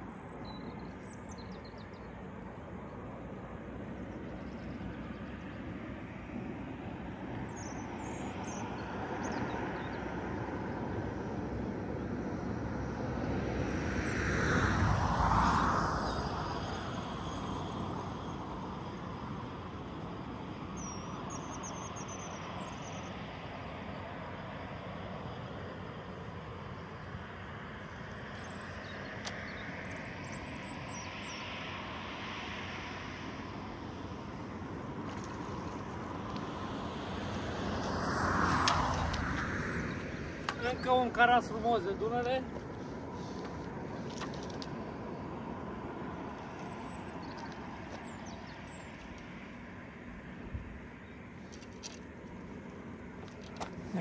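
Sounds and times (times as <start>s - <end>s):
engine passing by: 7.6s - 19.6s, 27.5s - 49.9s.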